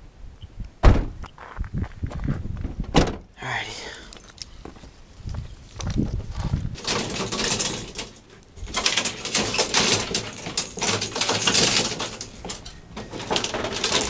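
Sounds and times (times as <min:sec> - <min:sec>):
rustling and handling noise: 0:04.1 - 0:14.0.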